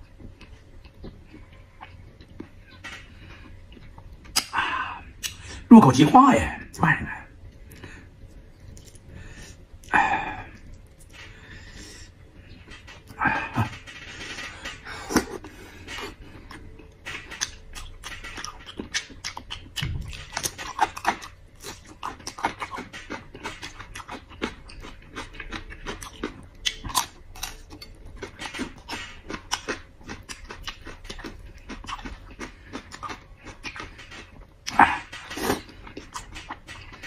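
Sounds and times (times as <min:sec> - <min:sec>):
wet chewing and lip-smacking: 0:15.0 - 0:37.0.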